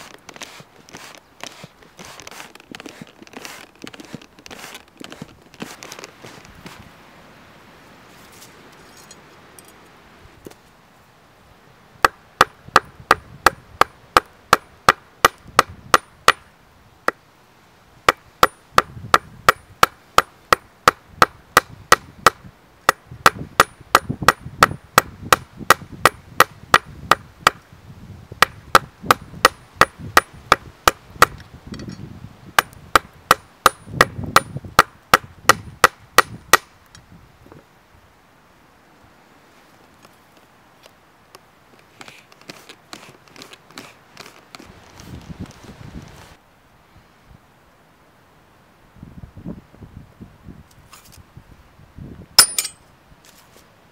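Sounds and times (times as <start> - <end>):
hammer clinking on iron: 52.4 - 52.8.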